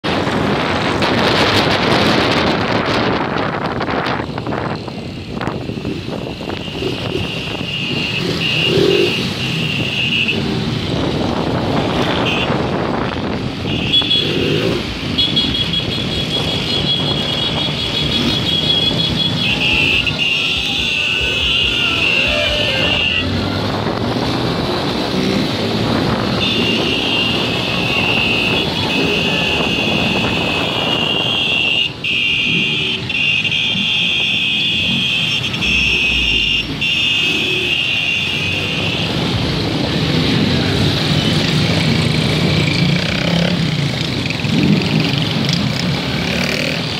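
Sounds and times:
motorcycle engine revving hard: 0:39.2 - 0:46.9.

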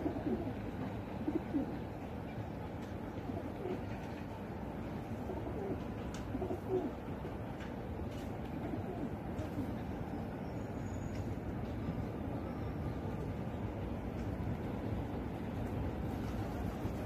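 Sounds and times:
pigeons cooing: 0:00.0 - 0:02.1, 0:03.1 - 0:07.4, 0:08.4 - 0:10.0.

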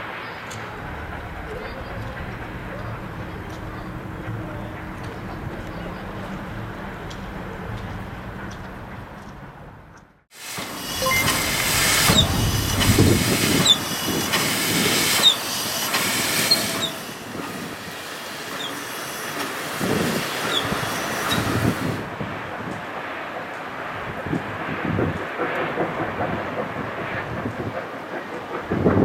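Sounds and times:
steam locomotive exhaust chuffs: 0:00.5 - 0:29.0
steam hissing: 0:10.3 - 0:29.0
short high squeaks: 0:10.9 - 0:12.4.

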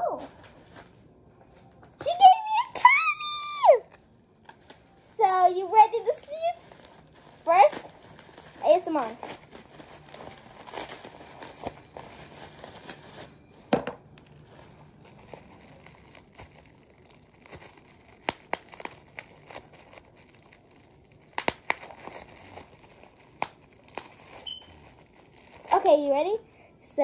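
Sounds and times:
bubble wrap crinkling: 0:00.0 - 0:26.4
bubble wrap bubbles popping: 0:05.8 - 0:25.9.

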